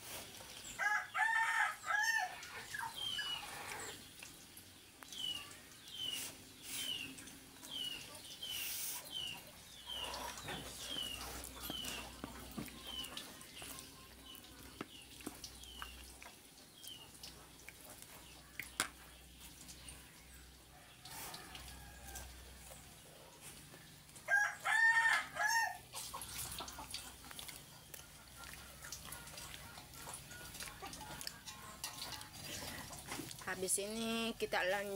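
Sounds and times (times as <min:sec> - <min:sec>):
rooster crowing: 0:00.8 - 0:02.4, 0:24.3 - 0:25.8.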